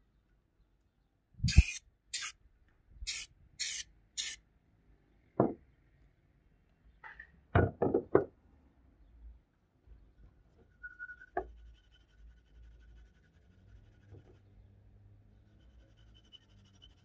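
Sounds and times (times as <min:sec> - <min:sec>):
aerosol can spraying: 0:01.4 - 0:02.4, 0:03.1 - 0:04.4.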